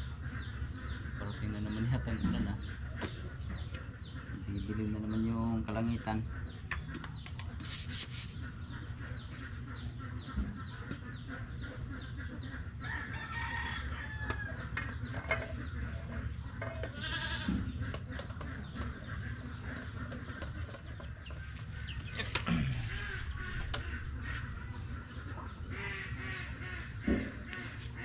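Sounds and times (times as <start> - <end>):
rooster crowing: 12.8 - 14.6.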